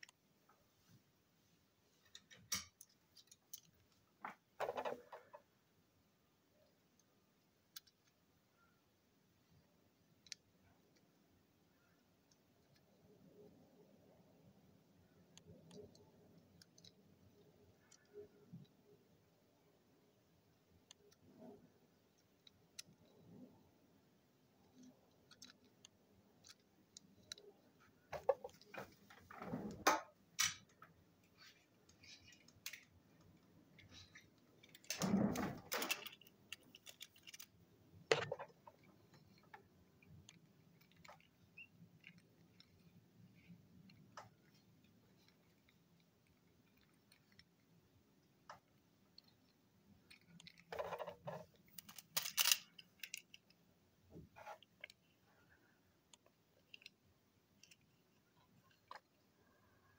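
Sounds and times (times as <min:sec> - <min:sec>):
toy cars clicking: 0:02.2 - 0:04.0, 0:06.7 - 0:08.2, 0:15.3 - 0:18.7, 0:24.6 - 0:27.6, 0:30.4 - 0:47.7, 0:48.4 - 0:53.6, 0:56.1 - 0:59.2
rustling handling noises: 0:30.6 - 0:47.7, 0:48.6 - 0:53.6.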